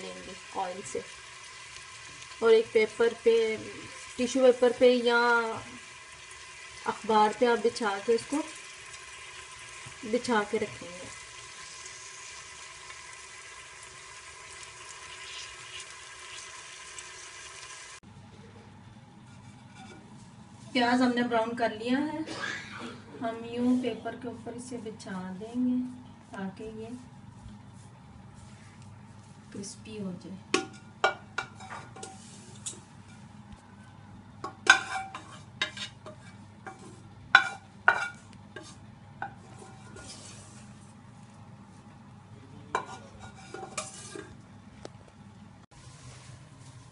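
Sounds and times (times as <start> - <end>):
onions sizzling in hot oil: 0.0 - 18.0, 30.6 - 33.4, 34.4 - 40.9, 42.7 - 44.4
oil popping and crackling: 0.6 - 3.0, 5.9 - 18.0
utensils clinking against cookware: 30.6 - 33.2, 34.5 - 38.2, 42.8 - 44.4.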